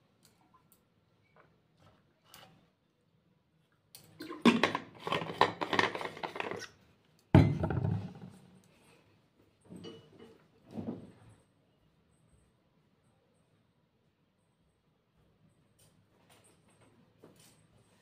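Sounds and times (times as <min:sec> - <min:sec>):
household objects clattering: 0:04.4 - 0:06.7.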